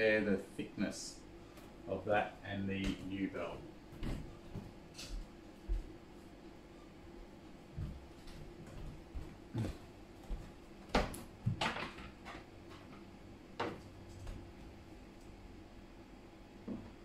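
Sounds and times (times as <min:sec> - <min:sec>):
footsteps: 0:02.8 - 0:06.0, 0:07.7 - 0:11.7.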